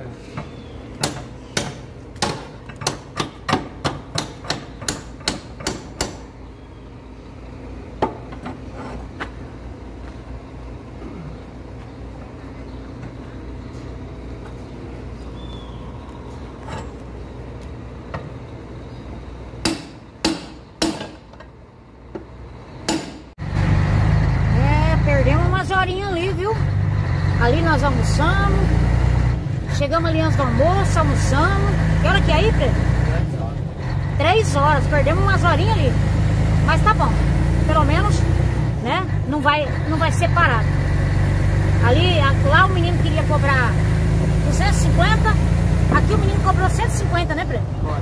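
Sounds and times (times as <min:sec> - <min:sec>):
steady low hum: 0:00.0 - 0:23.6.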